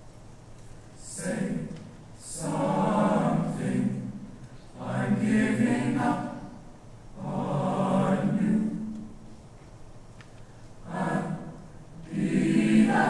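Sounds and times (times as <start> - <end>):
choir singing: 1.0 - 9.2, 10.8 - 13.0
choir breathing: 1.0 - 9.4, 10.4 - 13.0.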